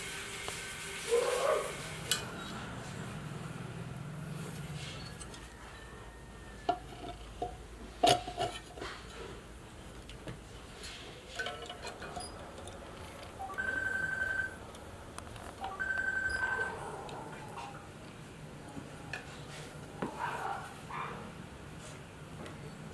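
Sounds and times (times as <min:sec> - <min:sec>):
metal clinks and knocks: 0:11.3 - 0:12.8.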